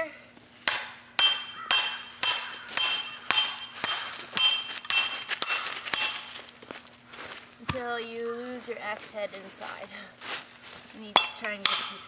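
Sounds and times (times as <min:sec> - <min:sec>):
hammer striking metal wedge: 0:00.6 - 0:06.4, 0:11.1 - 0:12.0.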